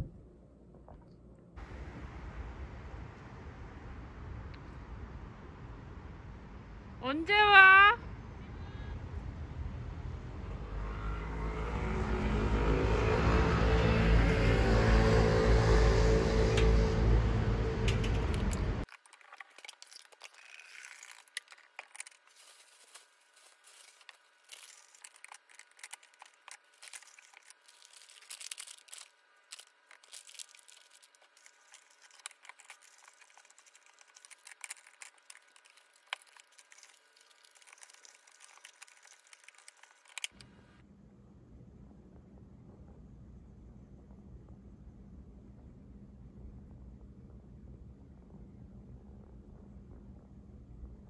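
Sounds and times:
street traffic: 0:01.6 - 0:18.9
faint low hum: 0:15.3 - 0:51.0
plastic bag crinkling: 0:18.8 - 0:40.4.

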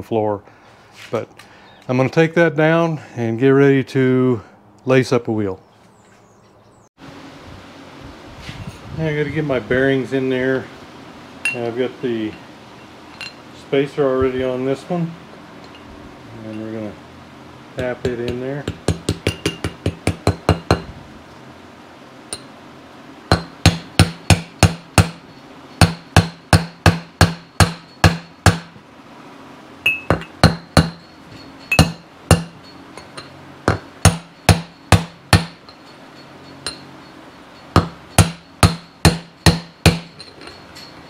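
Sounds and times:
hammer tapping metal: 0:17.8 - 0:20.9, 0:23.3 - 0:28.8, 0:29.8 - 0:41.0.

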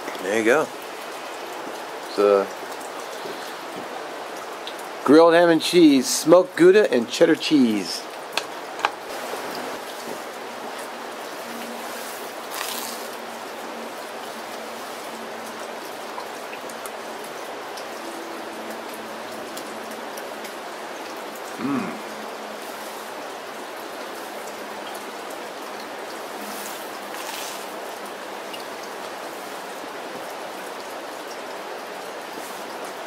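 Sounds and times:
steady rain falling: 0:00.0 - 0:33.0
man humming: 0:21.6 - 0:22.2.

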